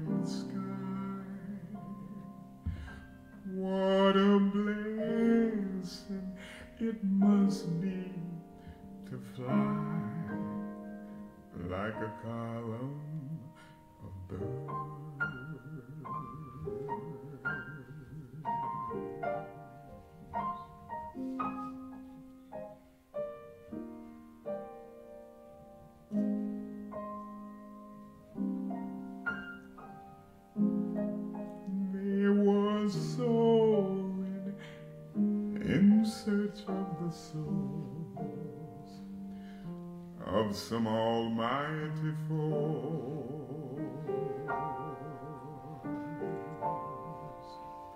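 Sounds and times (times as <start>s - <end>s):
slow jazz piano: 0.0s - 47.9s.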